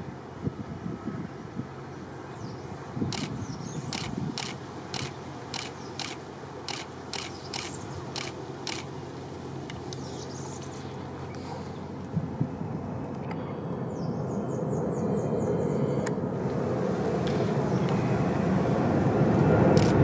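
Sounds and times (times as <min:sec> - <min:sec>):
sharp clicks: 0:03.1 - 0:08.9, 0:19.8 - 0:20.0
distant jet taking off: 0:11.0 - 0:20.0.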